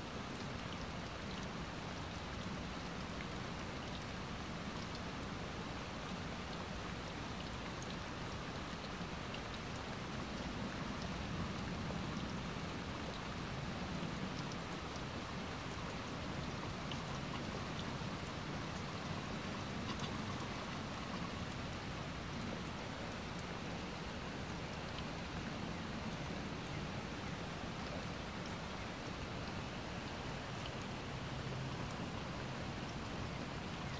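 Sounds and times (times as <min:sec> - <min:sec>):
steady rain: 0:00.0 - 0:33.9
raindrops ticking: 0:14.0 - 0:22.0.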